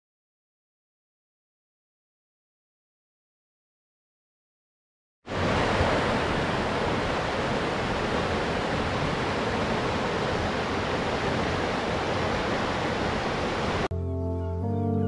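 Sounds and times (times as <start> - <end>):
river rushing over boulders: 5.3 - 13.9.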